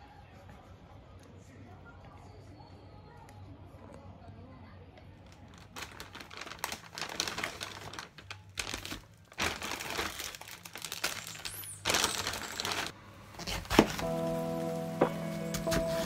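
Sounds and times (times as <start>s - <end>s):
plastic packet crinkling: 5.2s - 14.2s.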